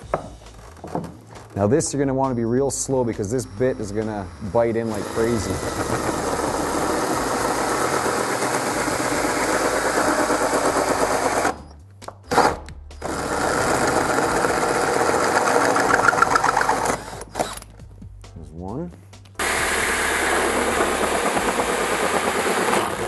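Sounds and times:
power drill hole saw cutting: 2.9 - 11.7, 12.3 - 17.6, 19.4 - 23.0.

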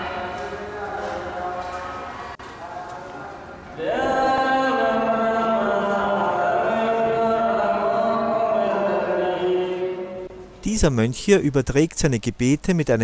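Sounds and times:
monk chanting into a microphone: 2.6 - 10.4.

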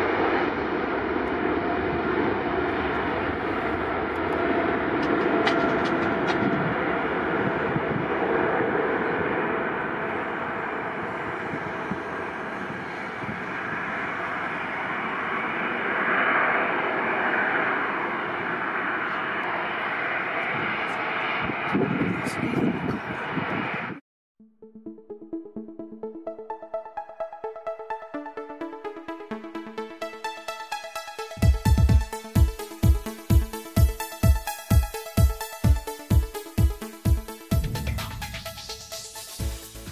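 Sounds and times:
jet engines at take-off: 0.0 - 24.0, 29.6 - 39.9.

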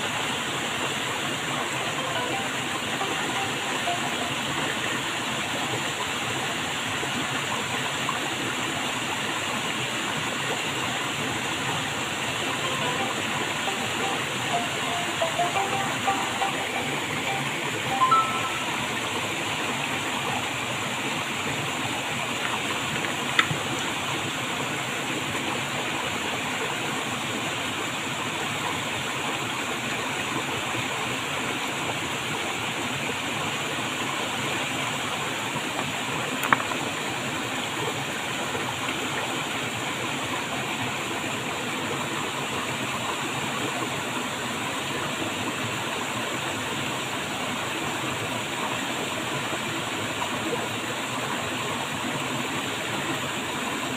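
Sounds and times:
stream water flowing: 0.0 - 53.9
stone tapping against stone: 36.4 - 36.8.

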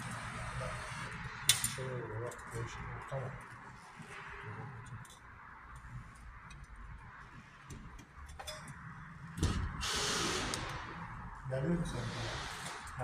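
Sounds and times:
cordless screwdriver whirring: 9.8 - 10.8.

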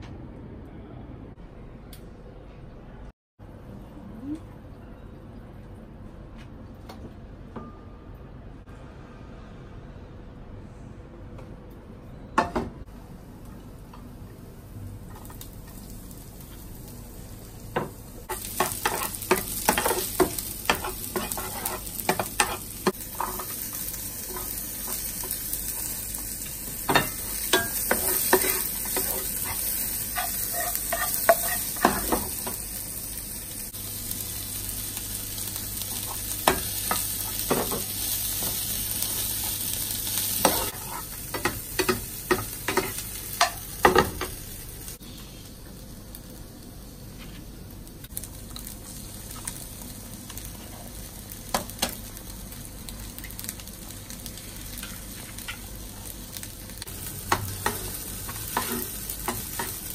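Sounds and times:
food sizzling in a frying pan: 14.4 - 59.9
metal spoon scraping a pan: 18.6 - 23.6, 27.0 - 32.2, 40.4 - 41.2.

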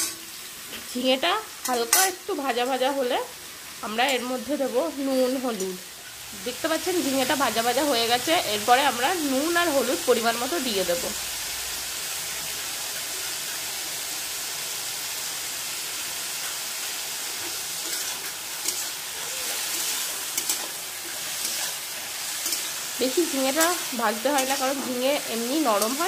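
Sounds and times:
vegetables sizzling in oil: 0.0 - 26.0
metal spatula scraping pan: 17.4 - 26.0.

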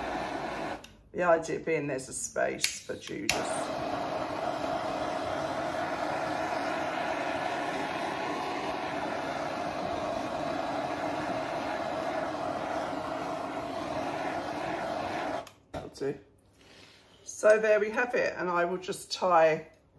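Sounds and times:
blowtorch hissing: 0.0 - 0.8, 3.2 - 15.5.

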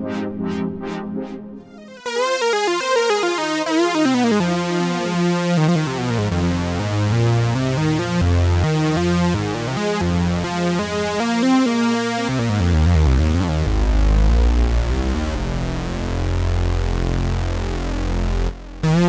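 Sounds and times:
synthesizer bass notes and chords: 0.0 - 19.0
synthesizer lead melody: 0.0 - 19.0.

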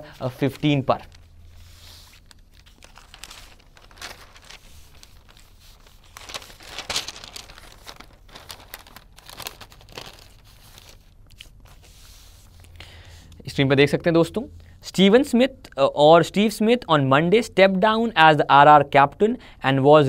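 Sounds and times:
newspaper pages rustling: 0.2 - 12.6.

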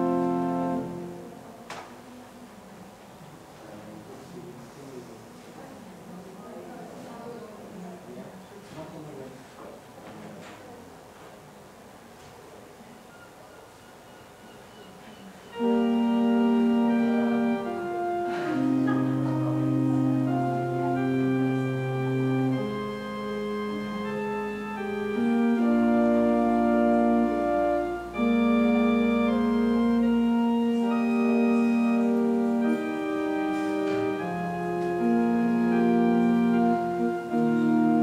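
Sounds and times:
organ playing slow chords: 0.0 - 1.7, 15.4 - 38.0.

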